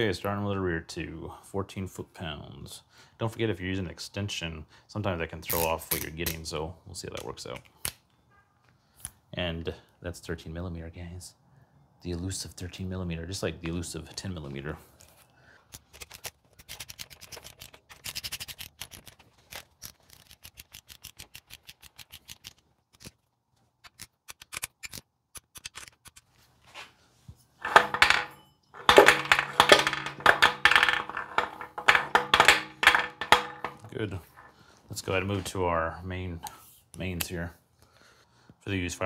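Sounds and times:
clatter: 27.6s - 34.5s.

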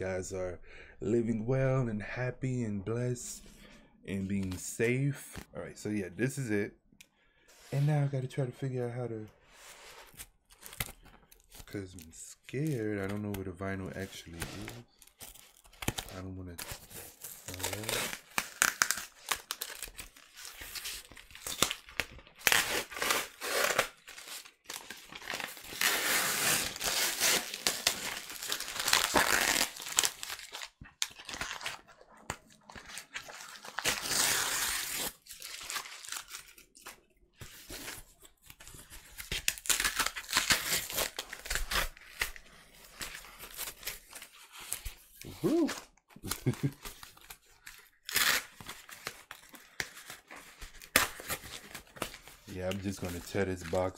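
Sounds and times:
cardboard ripping and crinkling: 14.0s - 53.9s.

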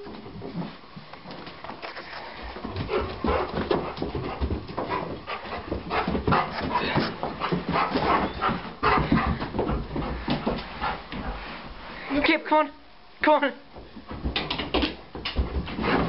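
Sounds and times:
dog whimpering and panting: 2.8s - 9.5s.

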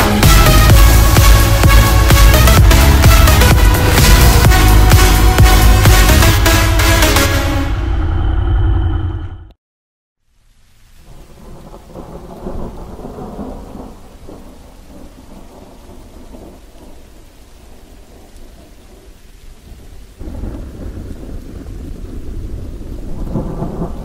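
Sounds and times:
rain: 0.0s - 7.6s, 10.2s - 24.0s
low rolling thunder: 11.0s - 24.0s.

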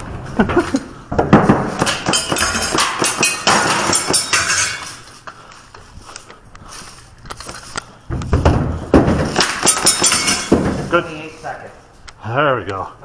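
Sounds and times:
hard knocks: 8.1s - 10.9s.

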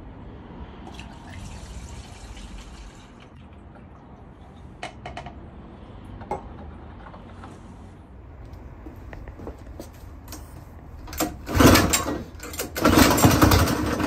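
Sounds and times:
fuel pouring through funnel: 0.8s - 4.7s.

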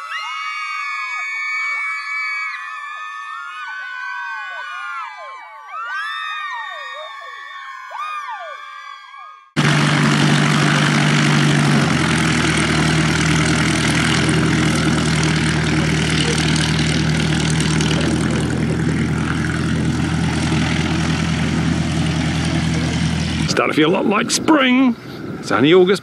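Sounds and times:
model plane engine buzzing: 9.6s - 23.6s.

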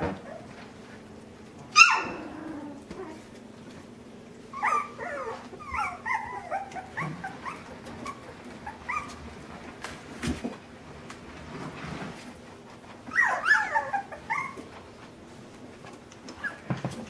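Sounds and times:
puppy whining and yipping: 1.8s - 3.3s, 4.5s - 9.2s, 13.0s - 14.8s, 16.3s - 16.7s.

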